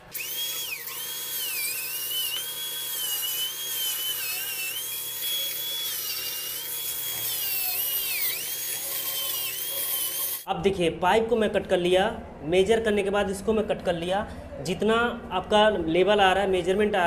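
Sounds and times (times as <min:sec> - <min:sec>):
angle grinder cutting plastic pipe: 0:00.0 - 0:10.5.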